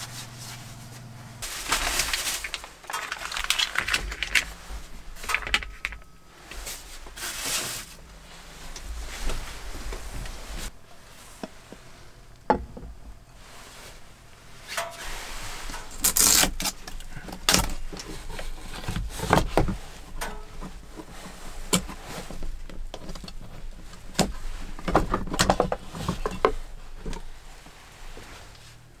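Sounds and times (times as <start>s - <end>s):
rustling: 0.0s - 29.0s
objects knocking and clicking: 5.2s - 6.2s.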